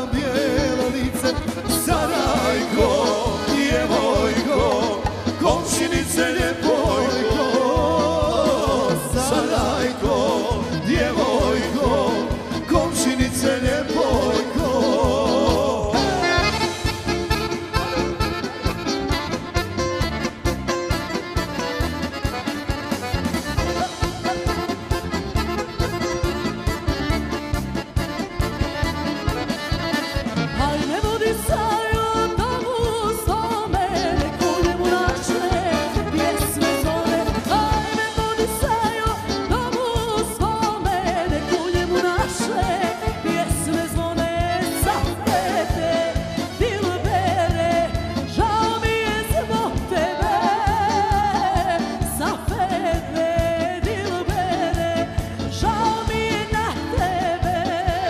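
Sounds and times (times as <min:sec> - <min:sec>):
person singing: 0:00.0 - 0:18.7, 0:30.4 - 0:58.0
drums: 0:00.0 - 0:58.0
keyboards: 0:00.0 - 0:58.0
live band playing: 0:00.0 - 0:58.0.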